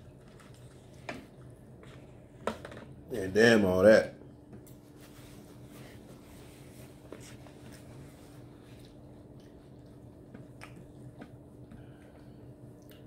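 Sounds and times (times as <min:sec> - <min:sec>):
soft chewing: 0:00.0 - 0:02.4, 0:04.5 - 0:13.0
steady low hum: 0:00.0 - 0:13.0.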